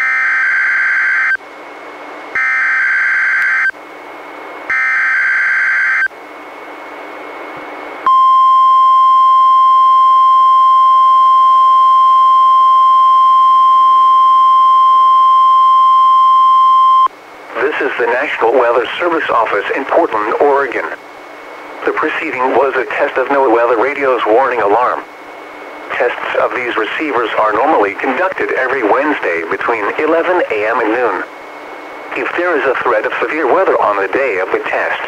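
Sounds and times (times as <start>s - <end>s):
steady warning alarm tone: 0.0s - 1.4s, 2.3s - 3.8s, 4.7s - 6.1s, 8.0s - 17.1s
radio hiss: 17.3s - 35.0s.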